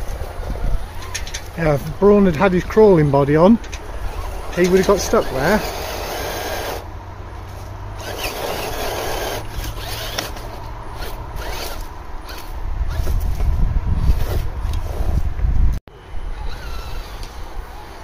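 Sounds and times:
electric motor whirring: 3.7 - 6.9, 8.0 - 13.4, 16.3 - 18.0.

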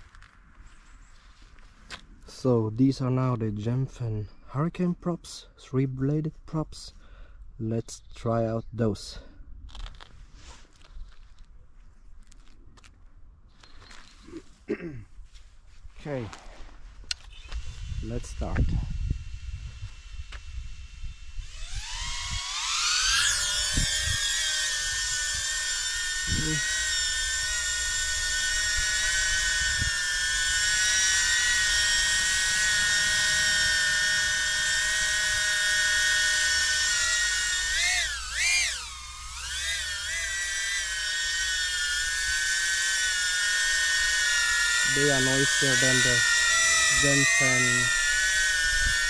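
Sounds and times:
drone motors whining: 16.1 - 49.0.

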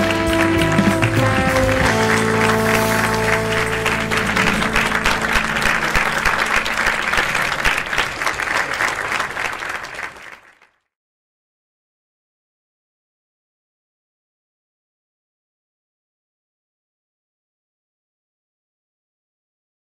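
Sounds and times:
music chord: 0.0 - 7.8
studio audience applauding: 0.0 - 10.8.

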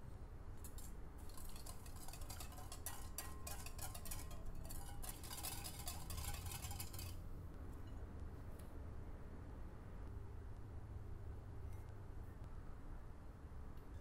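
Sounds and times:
whisk clinking against glass bowl: 0.7 - 7.1.

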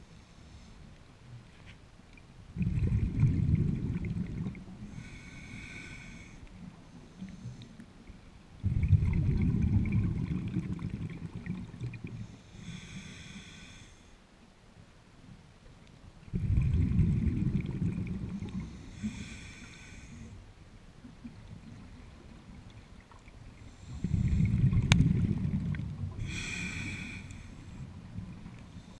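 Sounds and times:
exhaled bubbles rushing: 2.5 - 4.8, 8.6 - 12.1, 16.3 - 18.7, 24.0 - 26.2
regulator hiss: 26.2 - 27.8.

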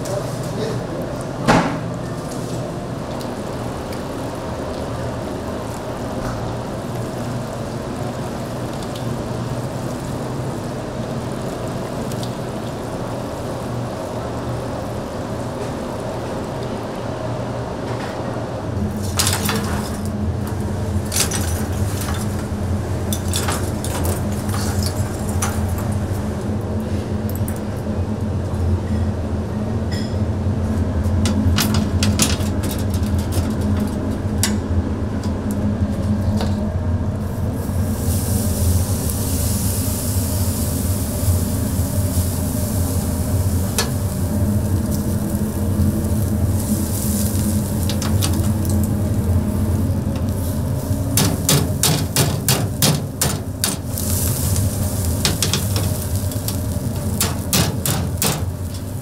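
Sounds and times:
food sizzling: 2.2 - 17.4, 18.8 - 26.6, 37.2 - 59.0
utensils clattering: 19.1 - 20.1, 21.1 - 26.0, 55.1 - 59.0.

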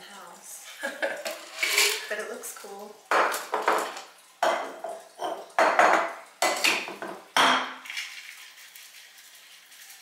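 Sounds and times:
drink sloshing in shaker: 7.8 - 10.0.

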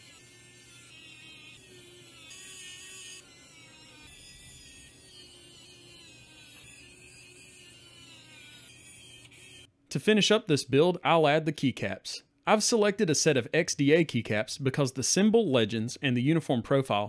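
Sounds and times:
electric screwdriver whine: 0.0 - 9.7.

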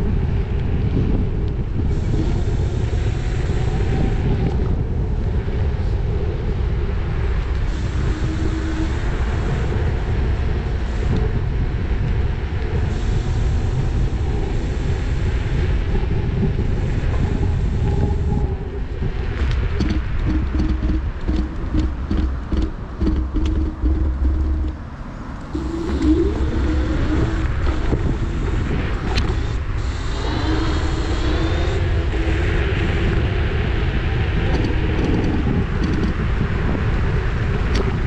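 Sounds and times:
wind and road noise: 0.0 - 38.0.

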